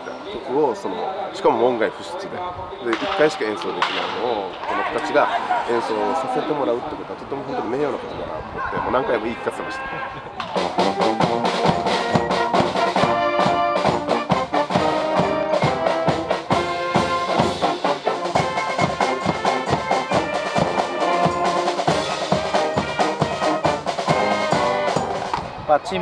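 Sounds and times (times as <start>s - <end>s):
marching snare and bass drums: 10.4s - 25.5s
brass band playing a march: 10.5s - 25.4s.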